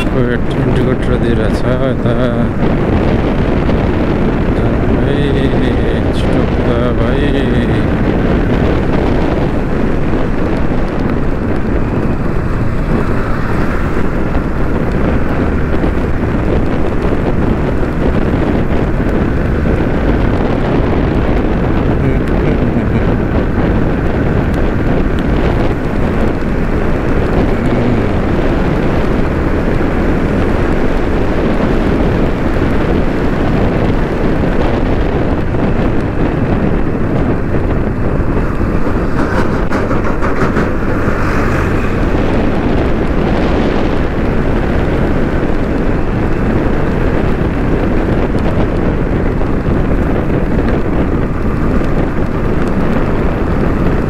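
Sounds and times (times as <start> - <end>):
motorcycle engine: 0.0 - 54.0
road noise: 0.0 - 54.0
wind rush on microphone: 0.0 - 54.0.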